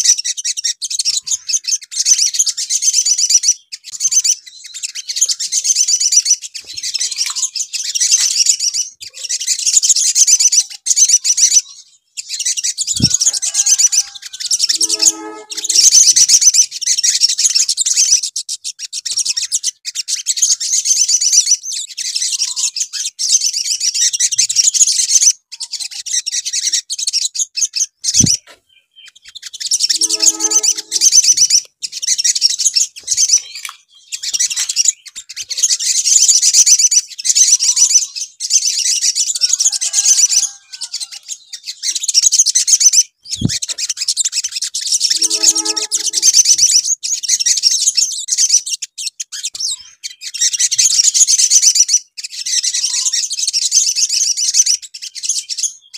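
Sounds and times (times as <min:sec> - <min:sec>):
birds singing chittering trills: 0:00.0 - 0:55.9
lower-pitched bird call: 0:12.7 - 0:16.4, 0:29.8 - 0:31.6, 0:44.9 - 0:46.8.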